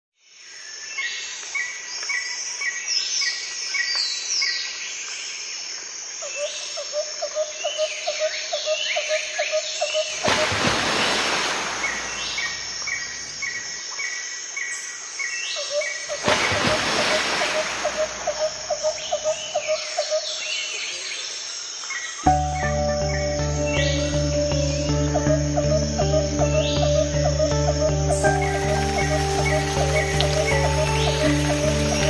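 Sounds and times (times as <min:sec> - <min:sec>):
rapid pulsing bird call: 0:15.6 - 0:20.4, 0:22.3 - 0:32.0
birds chirping and calling: 0:15.6 - 0:20.7, 0:22.3 - 0:32.0.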